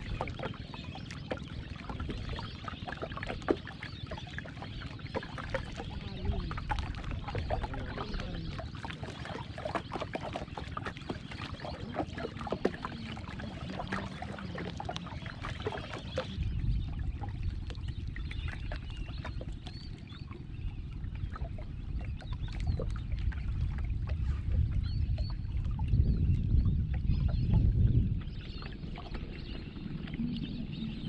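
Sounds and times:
water lapping against boat hull: 0.0 - 31.0
steady low rumble: 4.0 - 9.6, 10.7 - 31.0.

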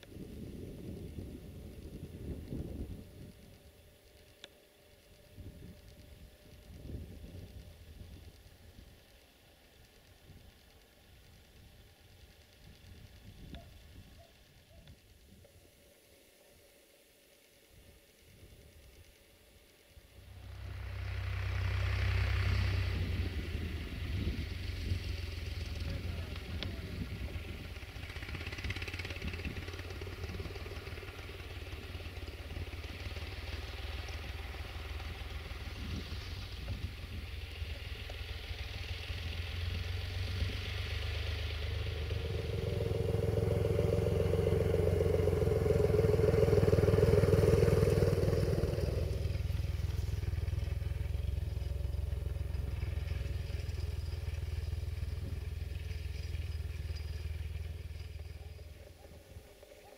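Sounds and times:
tractor engine rumbling: 0.0 - 15.4, 20.0 - 59.9.

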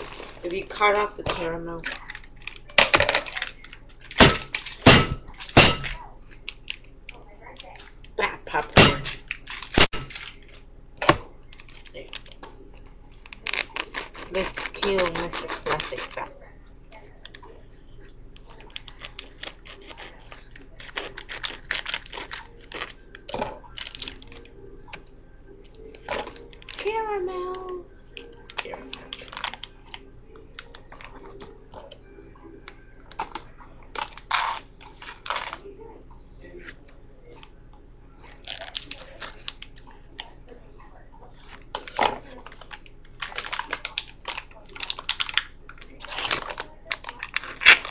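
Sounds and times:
plastic packaging crinkling and tearing: 0.0 - 0.7, 1.8 - 5.6, 9.2 - 10.7, 11.4 - 16.3, 18.4 - 24.5, 25.8 - 27.6, 28.4 - 31.5, 33.1 - 35.8, 38.2 - 40.3, 41.4 - 47.9.

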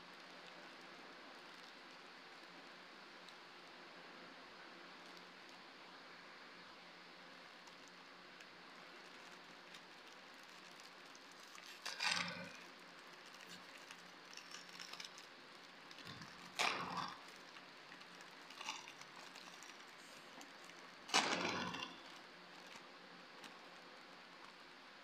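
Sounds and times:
plastic wrapper crinkling: 7.6 - 24.6.

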